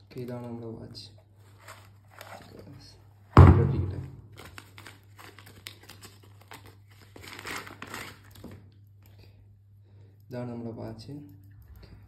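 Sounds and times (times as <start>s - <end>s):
plastic wrap crinkling: 1.4s - 2.7s, 4.0s - 8.8s.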